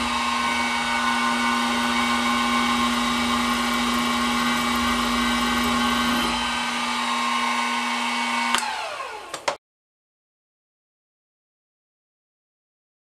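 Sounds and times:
milling machine motor running: 0:00.0 - 0:09.6
motor winding down whine: 0:00.0 - 0:09.6.

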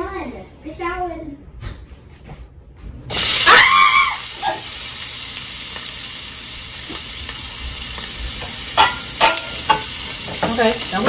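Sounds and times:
steak sizzling in hot oil: 0:03.1 - 0:11.0.

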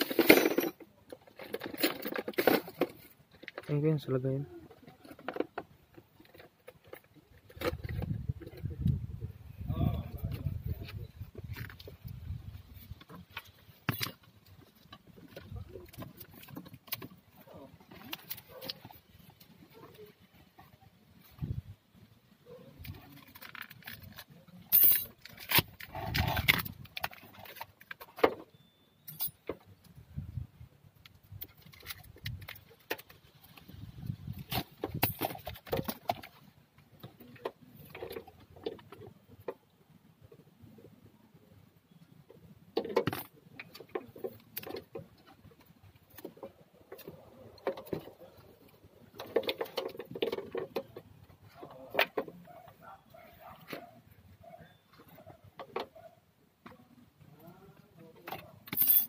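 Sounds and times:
wires and connectors rustling: 0:10.2 - 0:21.8, 0:22.5 - 0:28.5.

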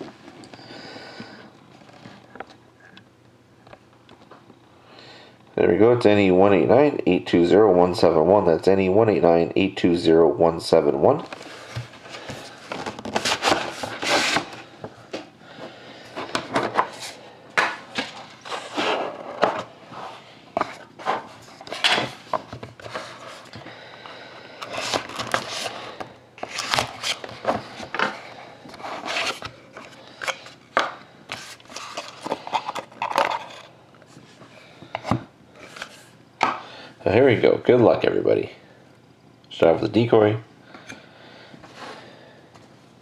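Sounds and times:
cards sliding out: 0:24.6 - 0:25.8.

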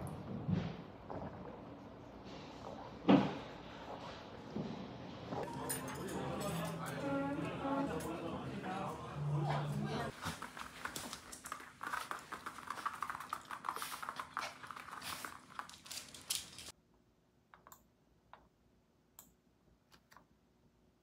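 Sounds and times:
dog claws clicking on floor: 0:10.3 - 0:16.7.

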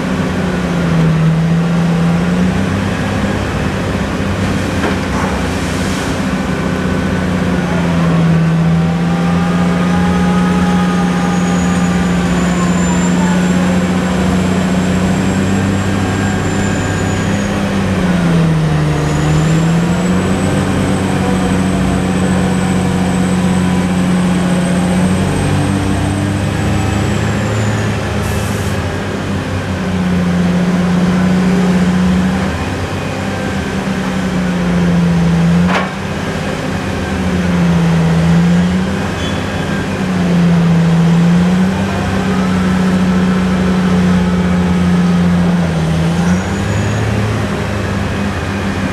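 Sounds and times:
diesel engine running hard: 0:00.0 - 0:48.9.

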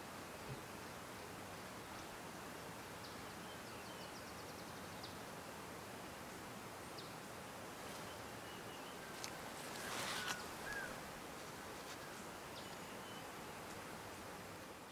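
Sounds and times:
steady forest hiss: 0:00.0 - 0:14.9.

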